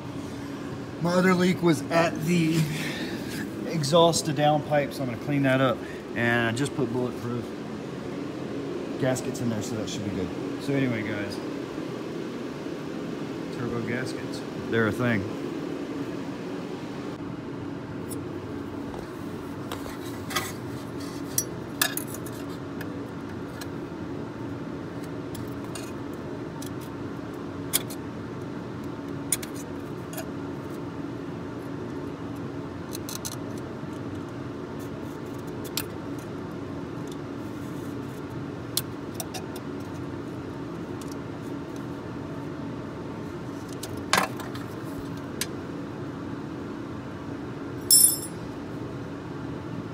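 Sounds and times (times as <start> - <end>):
steady background hum: 0.0 - 49.9
metal rod clinking on metal: 47.9 - 48.4.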